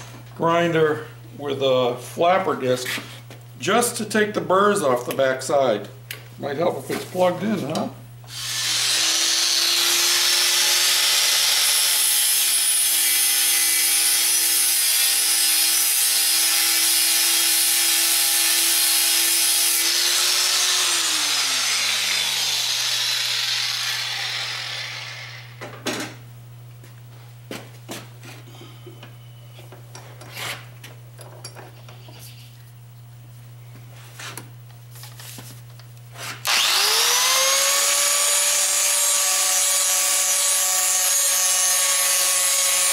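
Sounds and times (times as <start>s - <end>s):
angle grinder whining: 8.3s - 25.6s, 36.2s - 42.9s.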